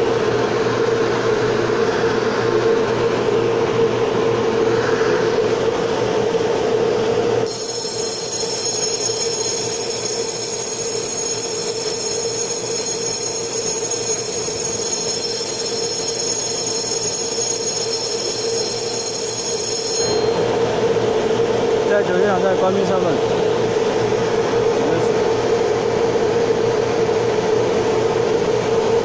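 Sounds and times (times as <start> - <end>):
stopped train humming: 0.0 - 26.3
platform departure bell ringing: 7.4 - 21.0.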